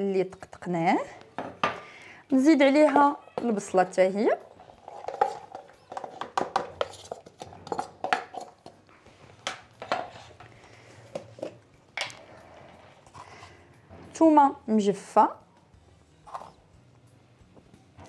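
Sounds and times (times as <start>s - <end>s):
kitchen containers and utensils clinking: 1.4s - 8.8s, 9.4s - 14.5s, 16.2s - 16.6s.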